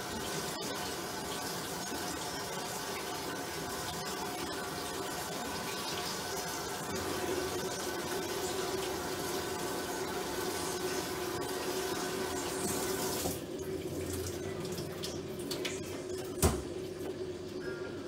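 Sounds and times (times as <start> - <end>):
tap water running into sink: 4.8 - 17.2.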